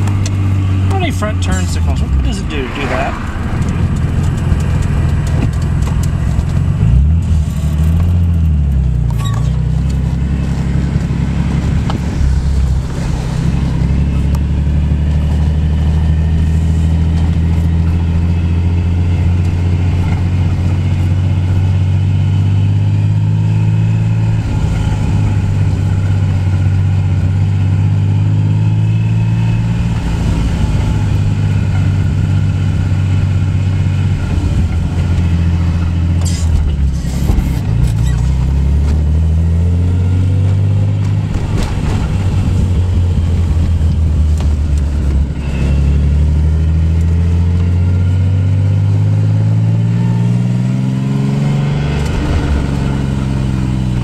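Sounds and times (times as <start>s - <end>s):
car engine accelerating through gears: 0.0s - 54.0s
sharp exhaust pops: 3.5s - 10.0s.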